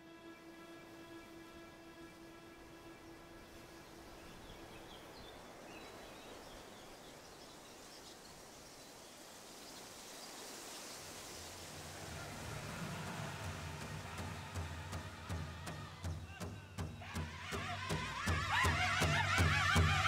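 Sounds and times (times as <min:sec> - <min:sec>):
steady background hiss: 0:00.0 - 0:20.0.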